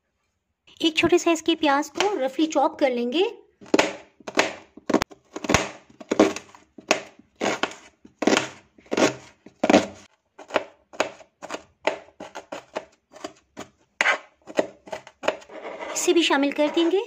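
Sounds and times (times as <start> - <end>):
knife chopping on plastic board: 1.9 - 2.2, 3.6 - 15.5.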